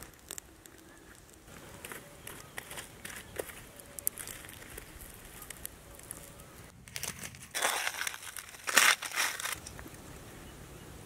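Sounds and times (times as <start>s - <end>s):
aluminium foil crinkling: 0.0s - 9.9s.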